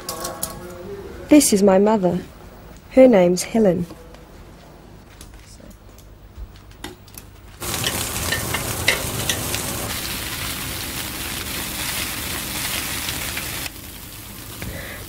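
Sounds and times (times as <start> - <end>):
meat sizzling on a barbecue: 7.6 - 15.0.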